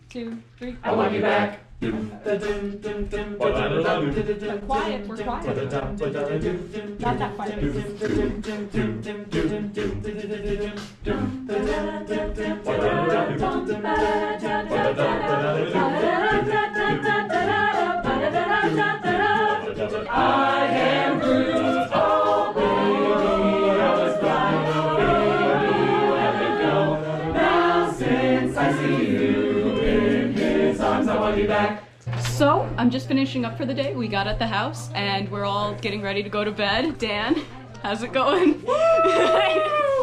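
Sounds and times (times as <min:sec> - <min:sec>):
a cappella group singing: 0:00.8 - 0:32.0.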